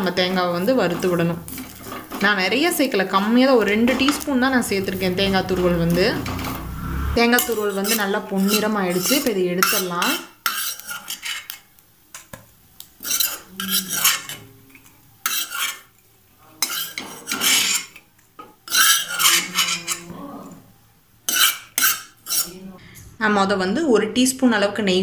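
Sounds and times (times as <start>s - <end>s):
metal spoon scraping a pan: 0.2s - 11.6s, 13.0s - 15.9s, 16.6s - 18.0s, 18.6s - 20.1s, 21.3s - 22.6s.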